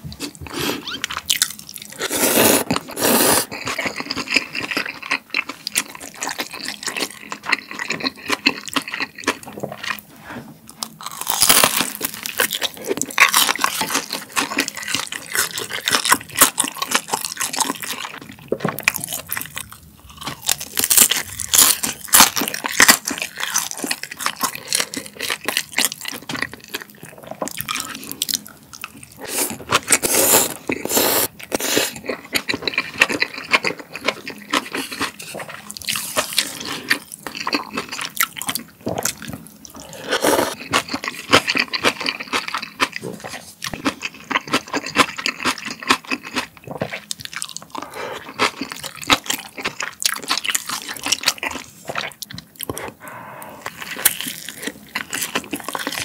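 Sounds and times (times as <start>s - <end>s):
crunching and chewing: 0.2s - 56.0s
slurping noodles: 2.0s - 3.7s, 29.2s - 32.0s, 39.8s - 40.6s.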